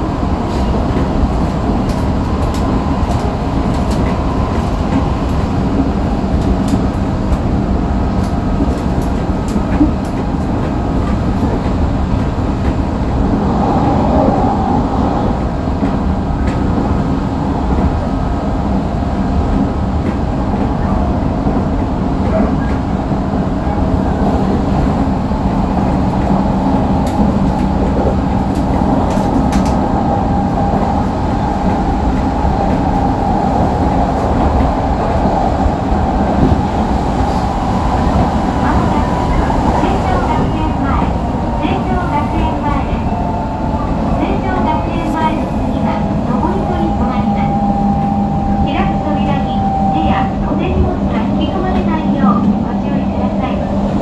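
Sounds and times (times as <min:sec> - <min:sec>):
train wheels rumbling on rail: 0:00.0 - 0:54.0.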